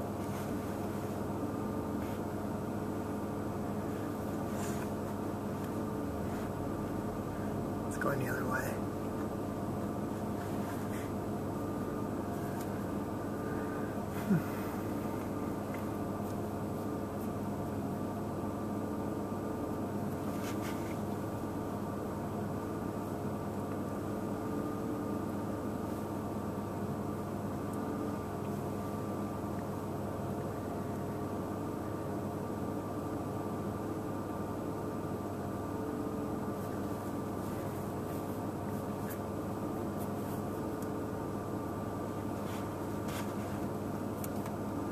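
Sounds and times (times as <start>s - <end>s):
steady mechanical hum: 0.0s - 44.9s.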